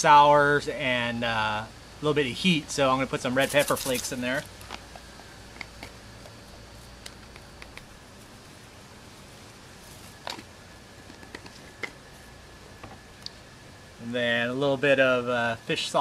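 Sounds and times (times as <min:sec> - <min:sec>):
pepper flakes clicking into bag: 0:03.4 - 0:04.2
plastic bag rustling: 0:03.4 - 0:04.8.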